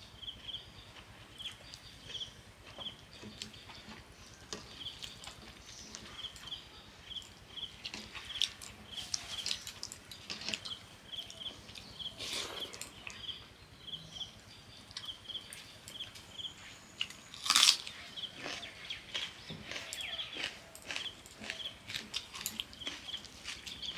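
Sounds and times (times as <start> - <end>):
loud crunch: 17.0 - 23.9.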